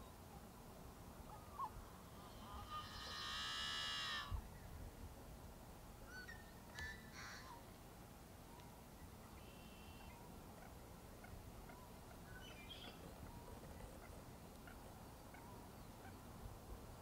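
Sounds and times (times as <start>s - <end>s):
drawn-out bird call: 1.3s - 4.4s
bird chirps: 11.7s - 13.5s.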